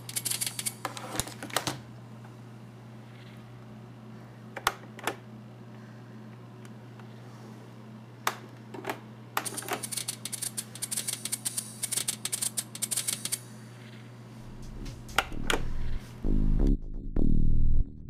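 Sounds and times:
steady low hum: 0:00.0 - 0:18.0
loud low-pitched sound: 0:14.4 - 0:18.0.

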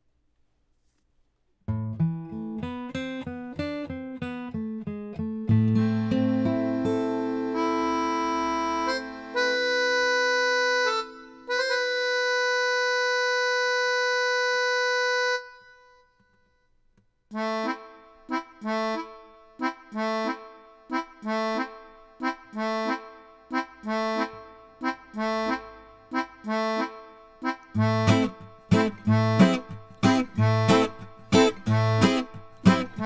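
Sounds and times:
accordion chords: 0:05.5 - 0:16.2, 0:17.3 - 0:33.0.

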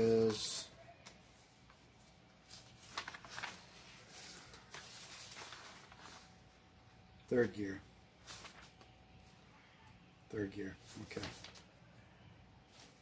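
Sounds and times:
paper sheets rustling: 0:00.1 - 0:06.6, 0:08.2 - 0:09.0, 0:10.8 - 0:11.7.

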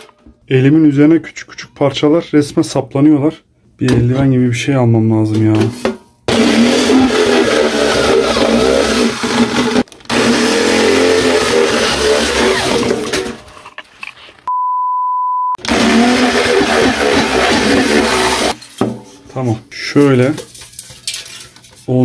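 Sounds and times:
electric drill boring through steel: 0:06.3 - 0:13.4, 0:15.6 - 0:18.6
steady beep tone: 0:14.5 - 0:15.6.

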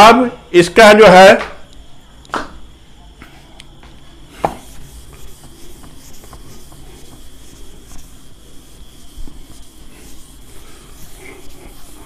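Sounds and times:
duster rubbing on whiteboard: 0:04.3 - 0:12.0.

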